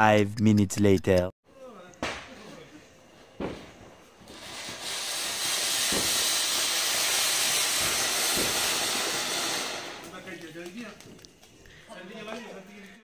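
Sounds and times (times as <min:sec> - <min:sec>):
firework fountain hissing: 0:03.0 - 0:12.2.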